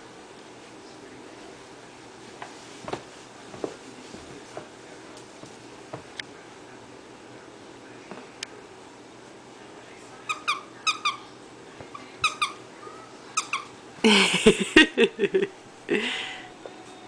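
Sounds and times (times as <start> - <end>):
dog toy squeaking: 10.3 - 11.2, 12.2 - 12.6, 13.3 - 13.7.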